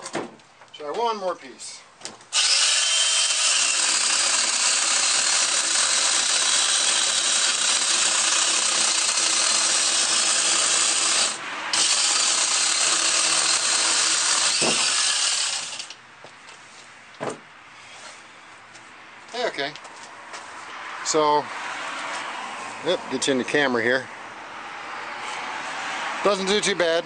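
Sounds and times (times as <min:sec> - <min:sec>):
small chainsaw cutting log: 0:02.3 - 0:16.0.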